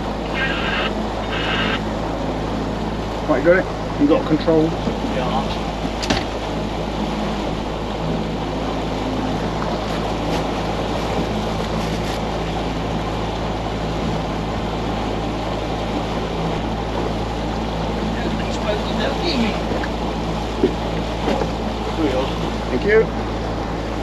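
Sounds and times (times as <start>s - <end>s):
boat engine drone: 0.0s - 24.0s
wind and water rushing: 0.0s - 24.0s.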